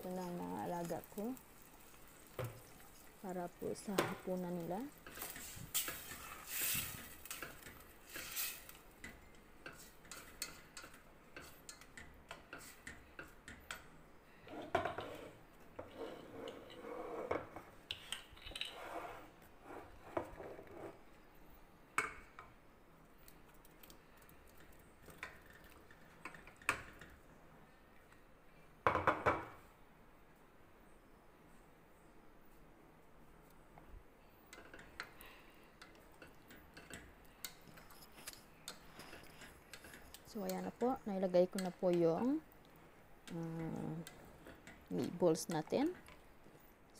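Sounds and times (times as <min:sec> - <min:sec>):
utensil scraping: 0:05.0 - 0:08.8.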